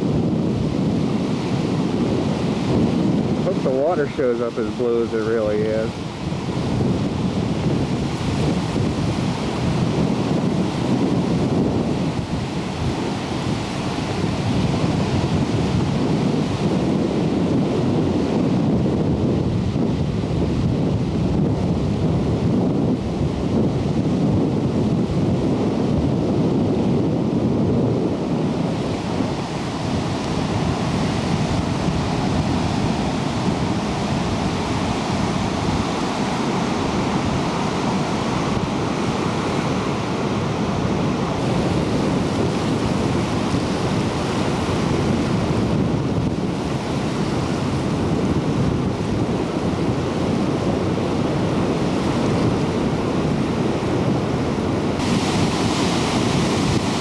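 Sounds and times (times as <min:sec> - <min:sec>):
surf washing over rocks: 0:00.0 - 0:57.0
wind buffeting microphone: 0:00.0 - 0:57.0.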